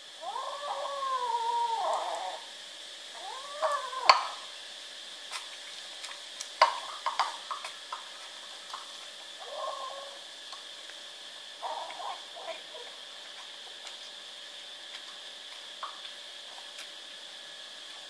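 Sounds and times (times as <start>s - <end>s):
kittens mewing: 0.2s - 2.5s, 3.1s - 4.5s, 9.4s - 10.3s, 11.6s - 12.9s.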